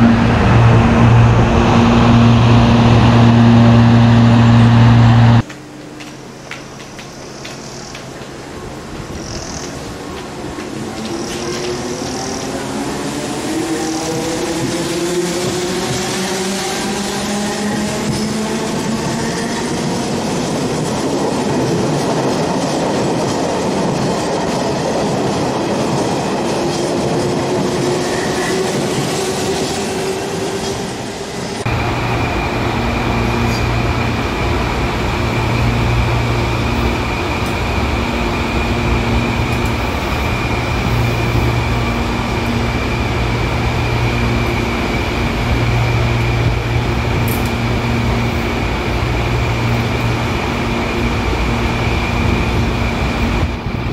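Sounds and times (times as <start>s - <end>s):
high motor whine: 0.0s - 7.9s
electric train passing: 0.0s - 53.9s
train wheels on rails: 0.0s - 53.9s.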